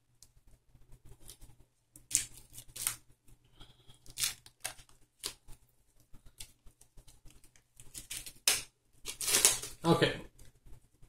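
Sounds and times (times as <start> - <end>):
wrapper tearing and crinkling: 2.0 - 3.0, 4.0 - 5.5, 6.3 - 10.0.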